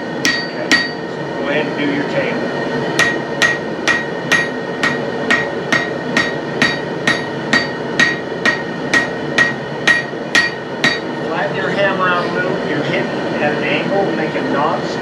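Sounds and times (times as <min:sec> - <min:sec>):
hammer striking metal bar: 0:00.2 - 0:01.0, 0:03.0 - 0:11.1.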